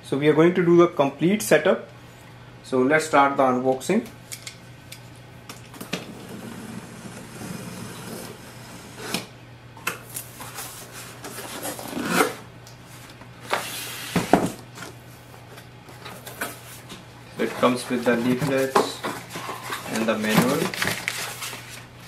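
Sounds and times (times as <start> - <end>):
knife scraping packing tape: 11.4 - 12.4
cardboard flaps rustling: 15.9 - 21.9.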